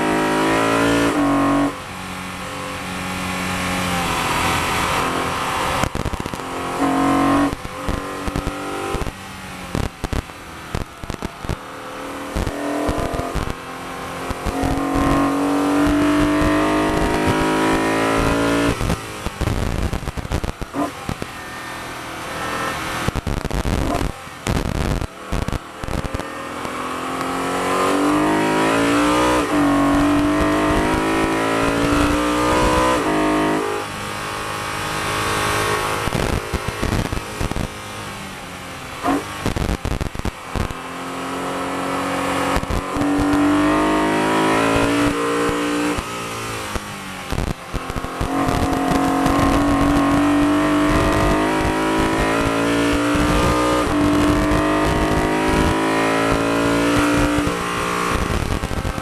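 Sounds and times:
car engine revving hard: 0.0 - 59.0.

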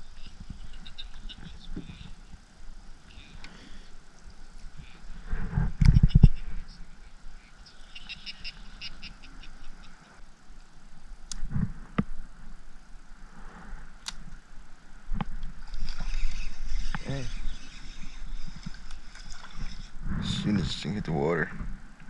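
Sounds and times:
high chirps: 7.5 - 10.2.

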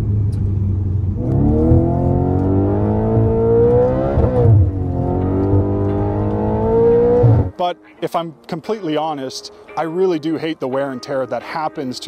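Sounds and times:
car engine accelerating: 0.0 - 7.5.

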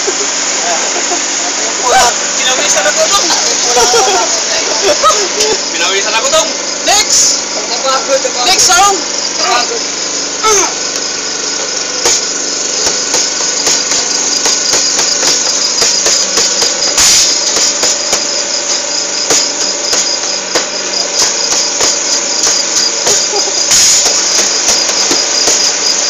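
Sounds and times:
acoustic guitar: 0.0 - 26.0
sticks striking pots: 11.5 - 26.0.

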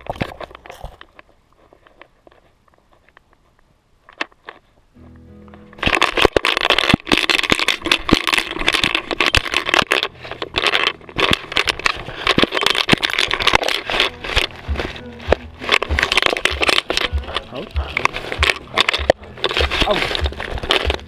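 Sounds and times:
rustling against camera: 0.0 - 21.0
sharp clicks and knocks: 5.5 - 21.0.

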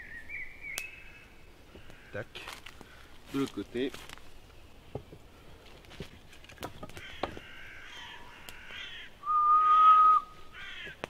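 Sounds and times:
crows cawing: 1.0 - 3.1, 6.8 - 9.9, 10.5 - 11.0
loud steady whistle: 9.2 - 10.4.

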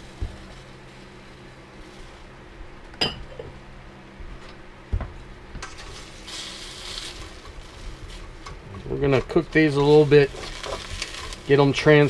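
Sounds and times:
steady low hum: 0.0 - 12.0
wooden spatula in steel wok: 9.2 - 11.9.

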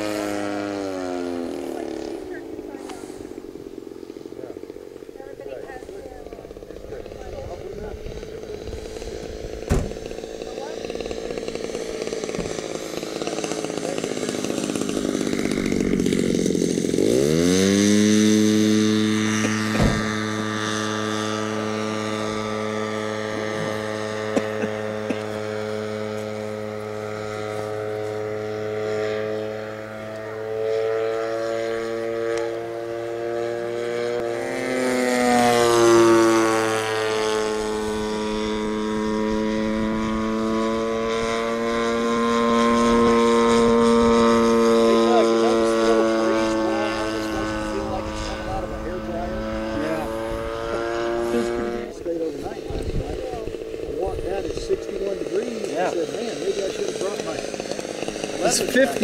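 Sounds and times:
propeller aircraft engine droning: 0.0 - 59.0.

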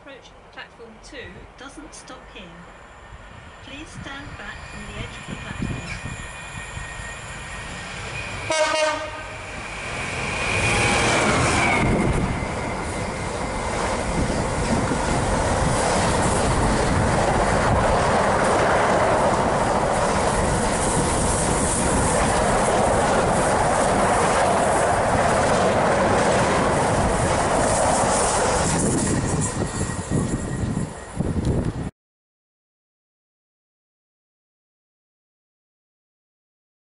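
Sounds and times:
locomotive passing: 0.3 - 31.9
train horn blast: 8.4 - 9.6.

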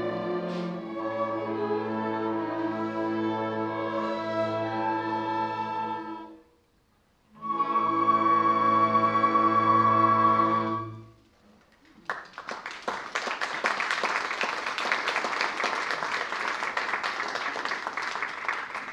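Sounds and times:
audience applauding: 11.7 - 18.9.

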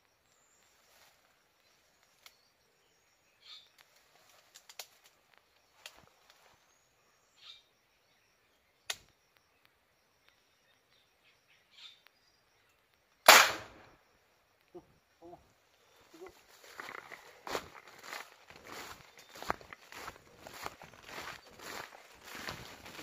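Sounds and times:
marble gun shot: 13.2 - 13.9.

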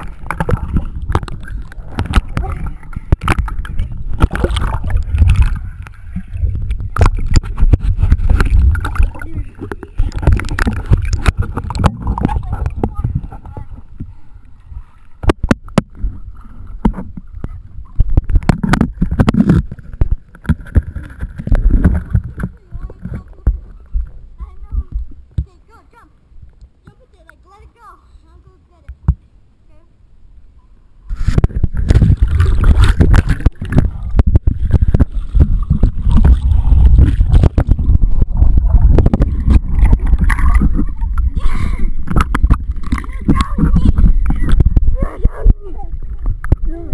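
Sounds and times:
deep muffled rumble: 0.0 - 25.2, 31.1 - 46.9
water sloshing: 0.0 - 28.0, 31.1 - 46.9.

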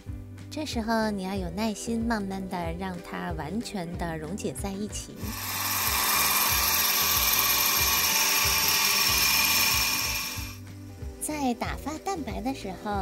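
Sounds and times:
electric hand mixer whipping: 5.2 - 10.6.

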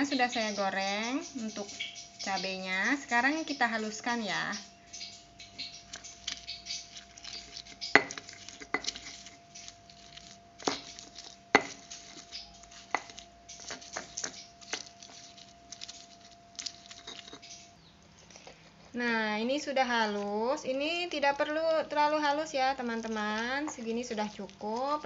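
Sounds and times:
stone pestle grinding in mortar: 5.7 - 17.6.

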